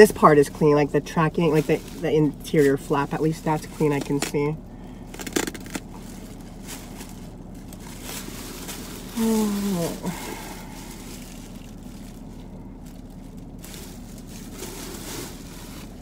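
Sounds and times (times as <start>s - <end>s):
plastic garment bag rustling: 0.0s - 4.4s, 5.1s - 16.0s
woman humming: 9.2s - 11.0s.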